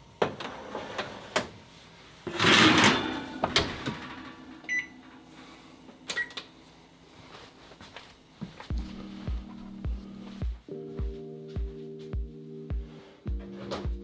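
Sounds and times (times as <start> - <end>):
oven rack and door clattering: 2.3 - 4.8
oven electronic beep: 4.6 - 5.0, 6.1 - 6.4.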